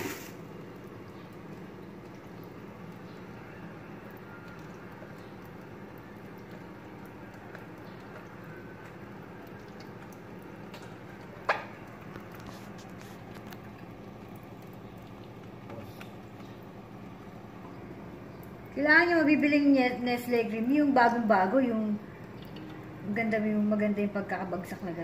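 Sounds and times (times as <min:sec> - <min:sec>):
cream squeezed from carton: 0:00.0 - 0:00.4
steady low hum: 0:00.0 - 0:25.0.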